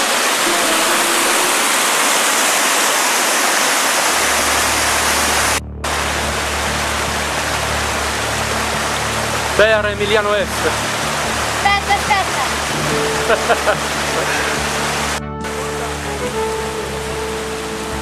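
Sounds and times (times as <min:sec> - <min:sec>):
stream rushing over rocks: 0:00.0 - 0:18.0
deep rumble: 0:04.1 - 0:16.3.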